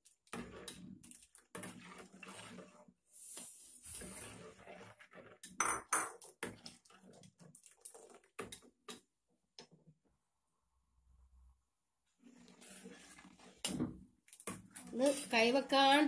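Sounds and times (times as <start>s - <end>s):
metal ladle scraping metal pot: 0.3s - 5.6s, 12.2s - 13.8s.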